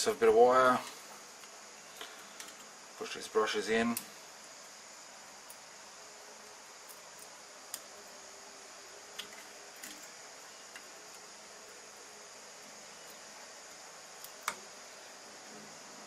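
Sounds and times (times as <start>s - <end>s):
faint steady hiss: 0.0s - 16.0s
small sharp clicks and taps: 14.2s - 14.6s.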